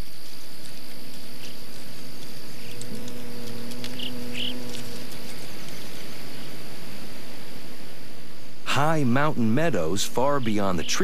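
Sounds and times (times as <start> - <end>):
outdoor hiss: 0.0 - 11.0
bumblebee buzzing: 1.4 - 7.7.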